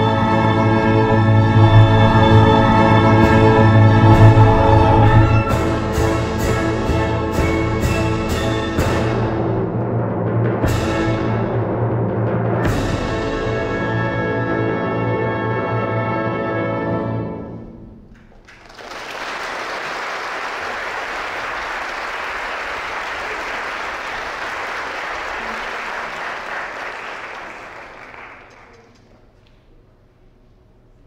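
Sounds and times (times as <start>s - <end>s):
audience applause: 18.2s - 29.1s.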